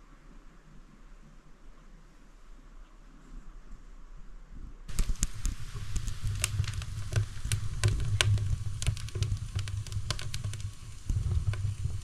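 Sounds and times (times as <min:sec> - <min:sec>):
low steady rumble: 0:00.0 - 0:12.0
wood fire crackling: 0:04.9 - 0:12.0.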